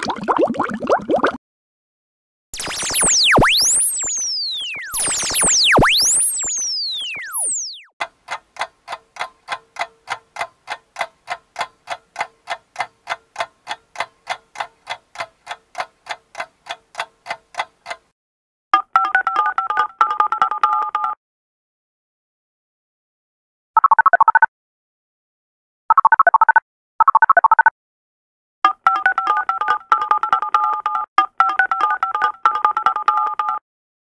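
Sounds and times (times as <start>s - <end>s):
warbling two-tone synth beep: 2.6s - 7.9s
electronic ticking: 2.6s - 18.1s.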